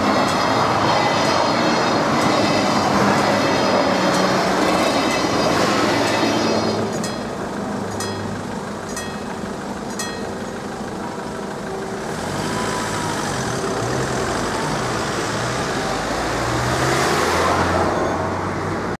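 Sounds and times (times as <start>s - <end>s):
car engines revving: 0.0s - 19.0s
level-crossing bell: 4.0s - 12.1s
car passing close: 12.0s - 19.0s.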